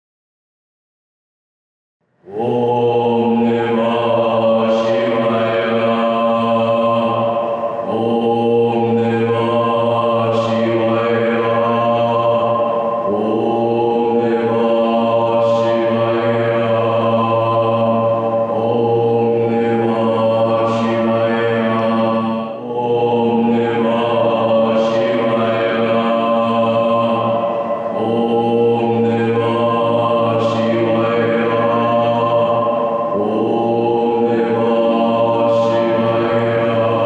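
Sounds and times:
deep droning chant: 2.1s - 37.0s.

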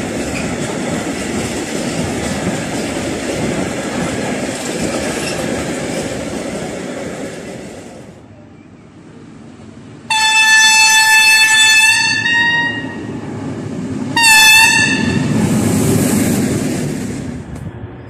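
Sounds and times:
diesel locomotive engine passing: 0.0s - 18.0s
locomotive horn blasts: 10.1s - 13.1s, 14.2s - 15.3s.

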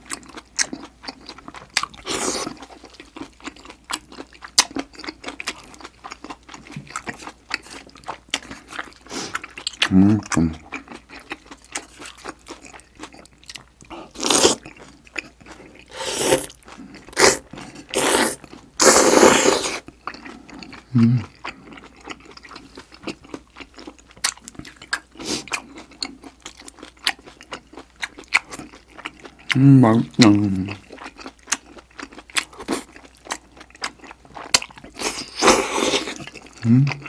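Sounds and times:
wet chewing and lip smacks: 0.0s - 18.8s, 19.8s - 29.6s, 30.7s - 37.0s
slurping: 13.9s - 14.8s, 15.8s - 21.4s.

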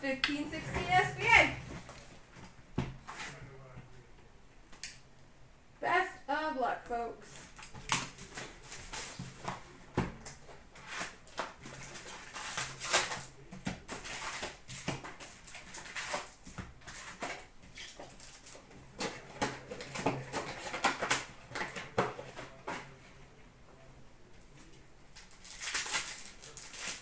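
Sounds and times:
foil packs crinkling: 7.3s - 9.4s, 10.8s - 22.0s, 25.2s - 27.0s
plastic wrap and cardboard tearing: 7.3s - 9.6s, 10.3s - 22.6s, 25.2s - 27.0s.

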